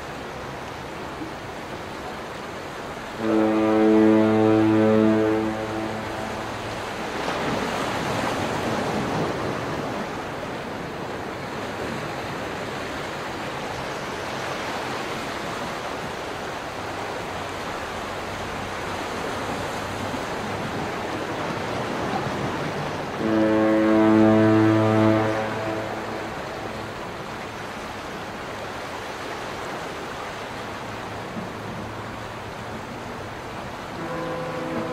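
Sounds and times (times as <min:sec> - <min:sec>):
ocean surf washing: 0:00.0 - 0:34.9
deep ship's horn blast: 0:03.1 - 0:09.9, 0:20.0 - 0:27.3, 0:33.8 - 0:34.9.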